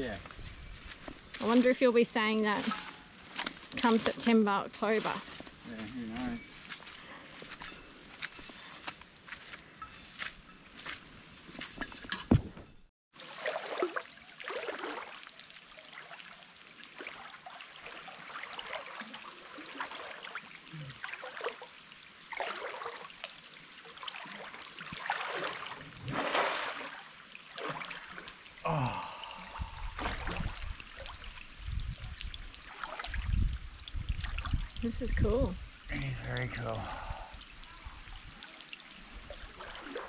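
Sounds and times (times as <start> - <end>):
water trickling and splashing: 0.0 - 40.0.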